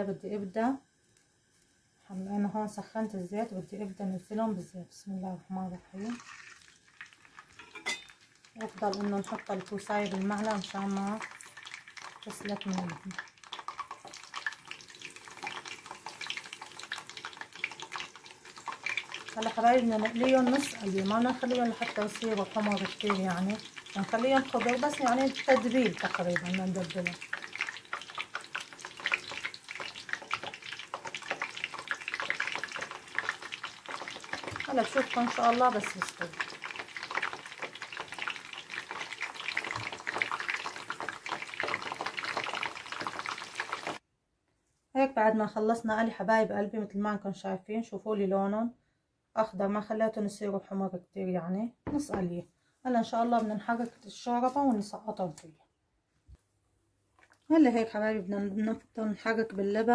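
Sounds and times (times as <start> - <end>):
zucchini sizzling and crackling in oil: 5.9 - 44.0.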